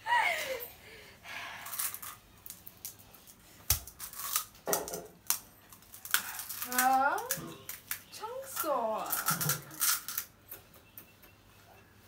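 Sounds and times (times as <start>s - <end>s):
crisp shells cracking and crunching: 1.6s - 10.3s.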